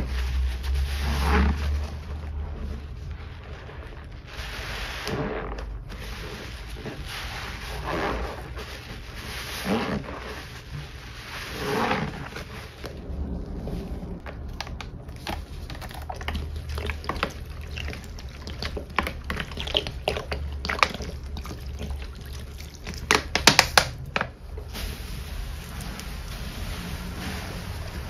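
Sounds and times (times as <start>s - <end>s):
crackling suds: 0.0s - 28.0s
sponge squishing in foam: 0.0s - 28.0s
cans shaken with sharp taps: 14.3s - 24.4s.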